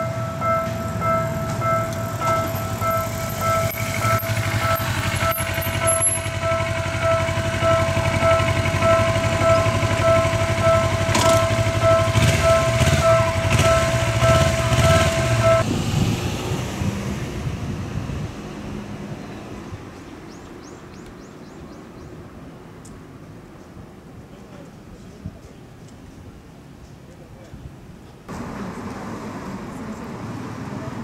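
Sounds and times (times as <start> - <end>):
level-crossing warning bell: 0.0 - 15.7
low vehicle engine rumble: 0.0 - 22.8, 28.3 - 31.0.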